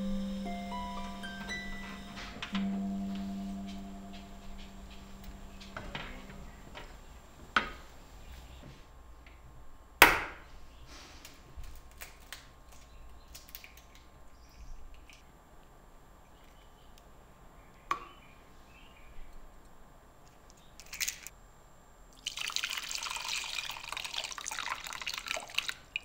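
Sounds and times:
plucked harp-like note: 0.0 - 7.0.

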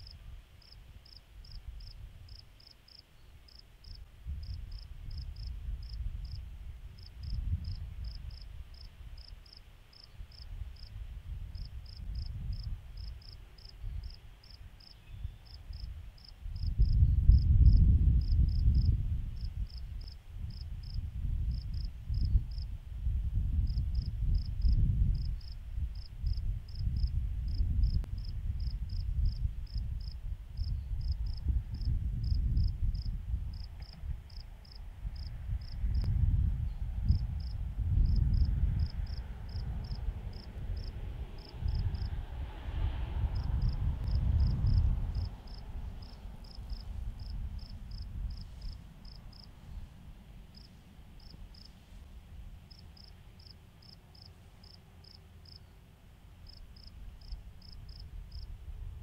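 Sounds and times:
insect chirping: 0.0 - 6.4, 7.0 - 10.9, 11.5 - 22.7, 23.7 - 33.7, 34.3 - 36.1, 37.1 - 42.1, 43.4 - 49.5, 50.5 - 51.7, 52.7 - 55.7, 56.5 - 58.5
low rumble: 20.5 - 53.1.

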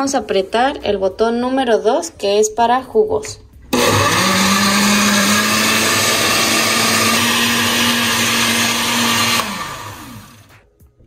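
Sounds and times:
blender motor running: 3.8 - 10.5.

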